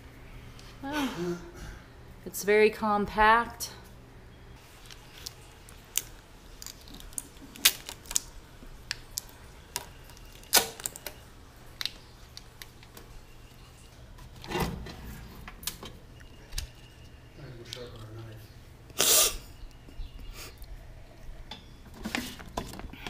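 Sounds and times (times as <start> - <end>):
clicks and knocks of oven handling: 14.4 - 16.0.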